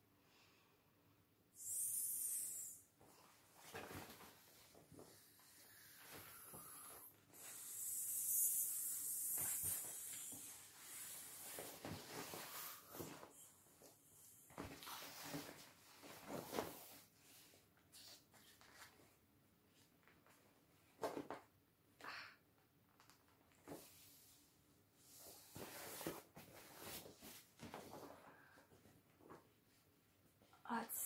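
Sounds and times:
breath puffs into valve: 0:01.6 - 0:02.9.

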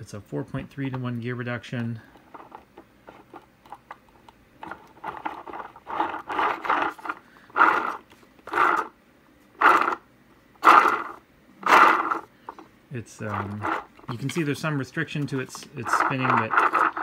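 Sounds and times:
robot wheel gearbox whirring: 0:04.6 - 0:08.9, 0:09.6 - 0:10.0, 0:10.6 - 0:12.6, 0:13.2 - 0:13.9, 0:15.3 - 0:17.0.

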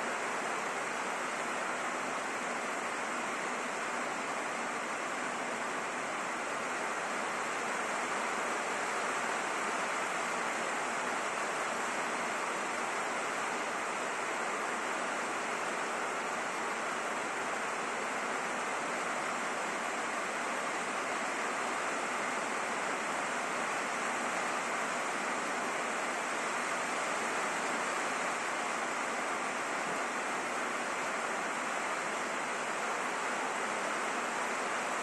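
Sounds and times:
rain on a roof: 0:00.0 - 0:35.0.

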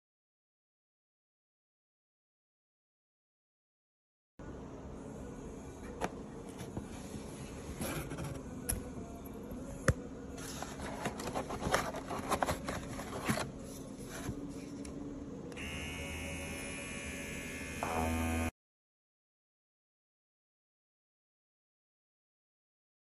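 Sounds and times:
clipper motor buzzing: 0:15.6 - 0:18.5.

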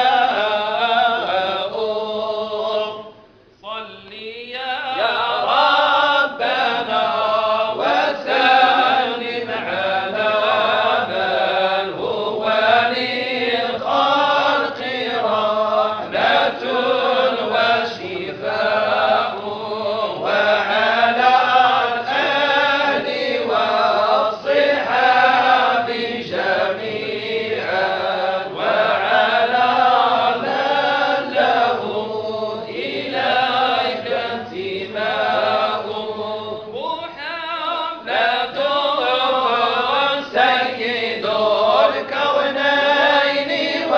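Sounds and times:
men chanting together: 0:00.0 - 0:03.1, 0:04.1 - 0:43.9.

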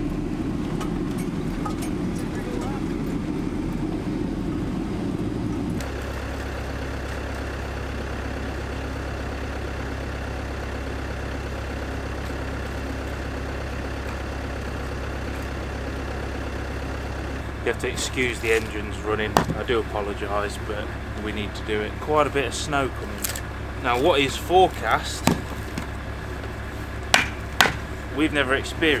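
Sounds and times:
van engine idling: 0:00.0 - 0:29.0
van engine while driving: 0:00.0 - 0:29.0.

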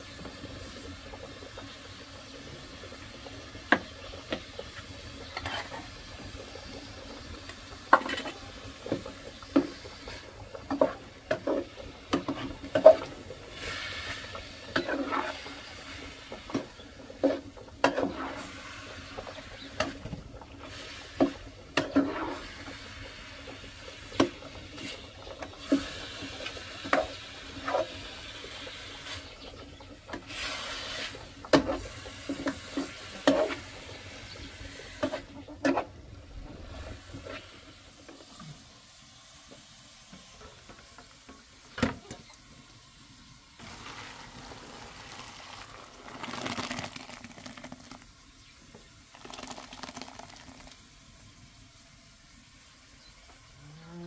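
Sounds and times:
simmering pots hissing: 0:00.0 - 0:54.0
metal ladle scraping a pot: 0:05.3 - 0:05.9, 0:12.2 - 0:15.6.

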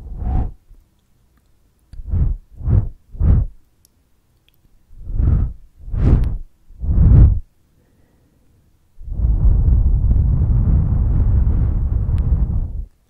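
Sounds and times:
breath blown onto microphone: 0:05.0 - 0:07.4.

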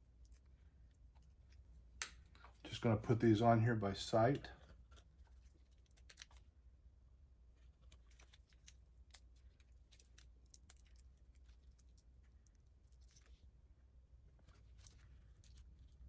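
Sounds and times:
small clicks and crinkles: 0:00.0 - 0:02.8, 0:04.4 - 0:06.6, 0:07.5 - 0:13.6, 0:14.2 - 0:16.0
low steady hum: 0:00.0 - 0:16.0.

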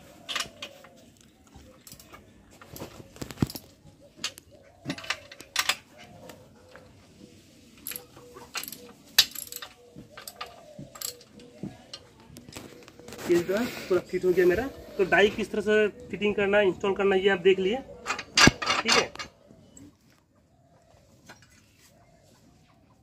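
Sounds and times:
metallic clinks and clanks: 0:01.8 - 0:02.2, 0:07.8 - 0:12.0, 0:18.0 - 0:19.3.

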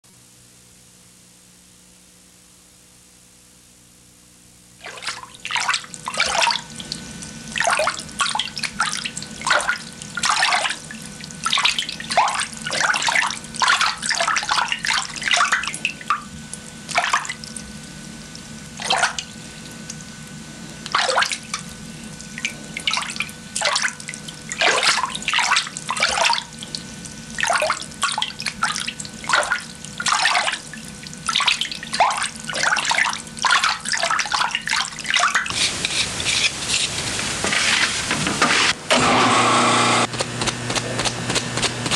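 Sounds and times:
faint steady hum: 0:00.0 - 0:41.0
liquid splashing and sloshing: 0:04.8 - 0:20.2, 0:20.8 - 0:38.3.

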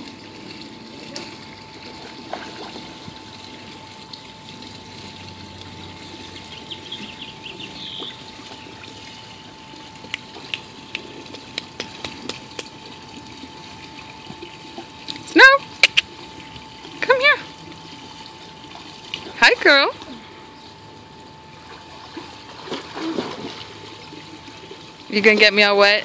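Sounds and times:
pool water trickling and lapping: 0:00.0 - 0:26.0
thin steady tone: 0:00.0 - 0:26.0.

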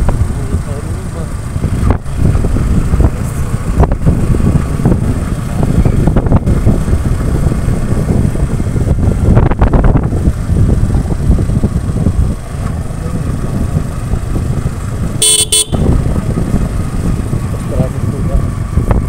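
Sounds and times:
vehicle engine driving: 0:00.0 - 0:19.0
wind rumble on microphone: 0:00.0 - 0:19.0.

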